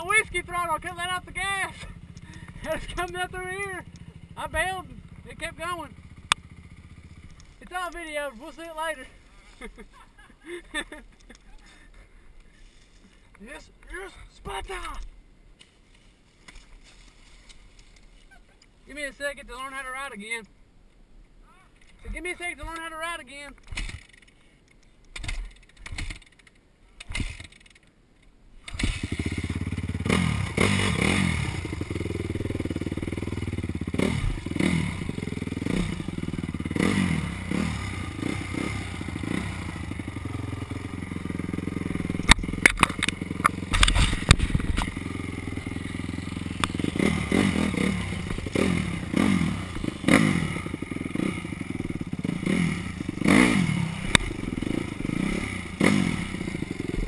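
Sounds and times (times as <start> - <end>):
dirt bike engine revving: 0.0 - 9.1, 28.7 - 57.0
bike clattering on rough ground: 15.6 - 18.4, 23.6 - 24.4, 25.1 - 27.9, 40.0 - 55.2.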